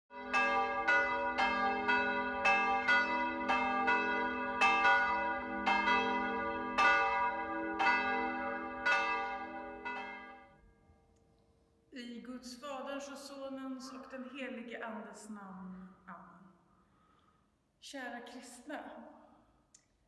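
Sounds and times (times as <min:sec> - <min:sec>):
church bells ringing: 0:00.1 - 0:10.6.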